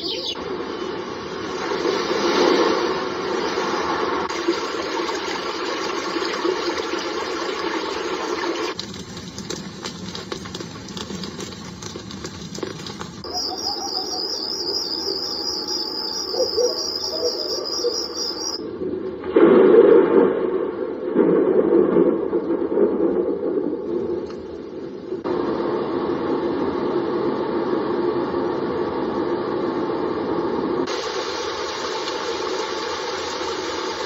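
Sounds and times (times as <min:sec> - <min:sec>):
high pulsing cricket-like chirping: 0:13.2 - 0:18.7.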